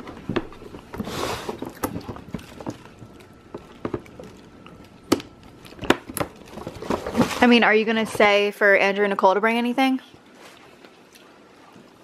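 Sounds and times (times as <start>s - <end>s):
paper rustling: 6.2s - 7.6s.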